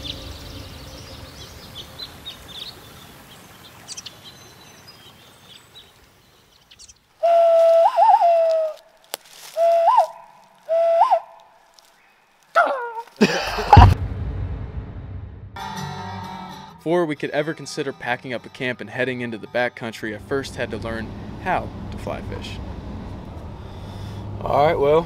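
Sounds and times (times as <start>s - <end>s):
hand whistling: 7.2s - 8.8s, 9.4s - 11.4s.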